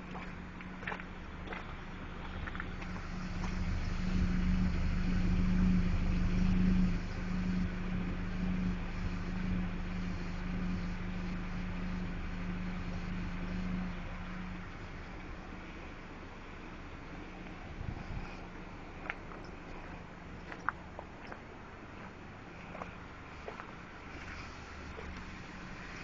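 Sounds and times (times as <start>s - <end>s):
car engine idling: 0.0s - 20.6s.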